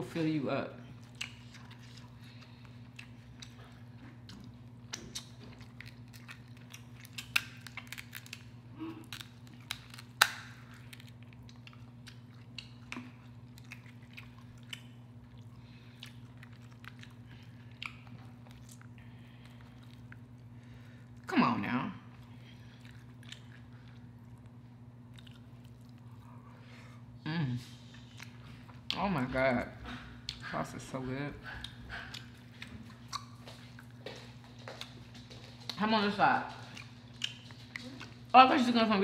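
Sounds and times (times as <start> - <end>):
person chewing: 0.9 - 21.3, 22.1 - 27.1, 27.7 - 29.0, 29.8 - 30.4, 31.5 - 35.8, 36.6 - 38.3
crab shell cracking: 4.9 - 15.0.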